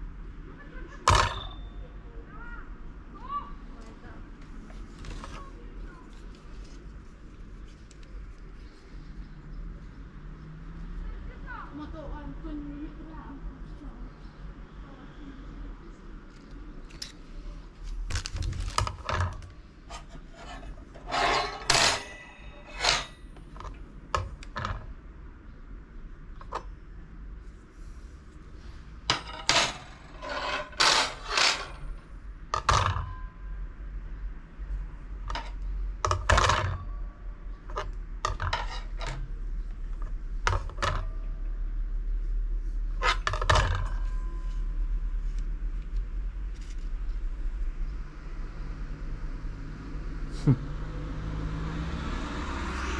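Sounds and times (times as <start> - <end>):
metal brake rotors clinking: 1.1 - 1.8, 19.1 - 24.7, 29.1 - 32.0, 37.8 - 39.3.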